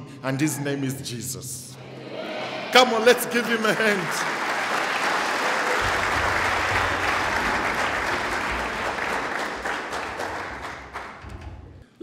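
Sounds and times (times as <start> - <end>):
crowd applauding: 2.0 - 11.3.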